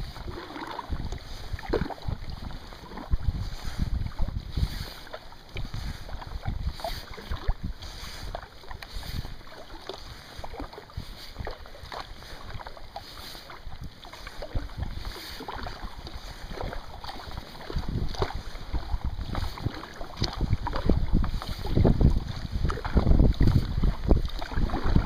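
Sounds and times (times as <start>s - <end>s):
kayak paddle splashing: 0.0s - 25.0s
wind buffeting microphone: 0.0s - 25.0s.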